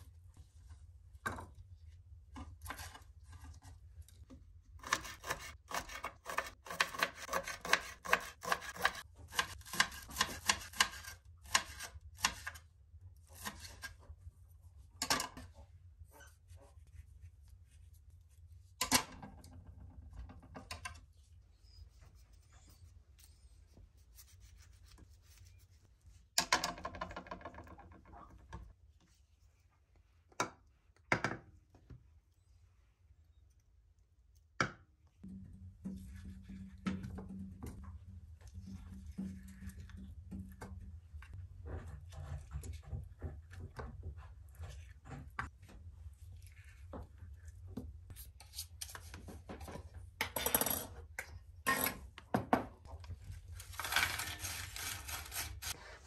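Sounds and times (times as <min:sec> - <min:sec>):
knife chopping on cutting board: 0:04.8 - 0:12.6
knife scraping board: 0:04.8 - 0:12.6, 0:13.3 - 0:14.0.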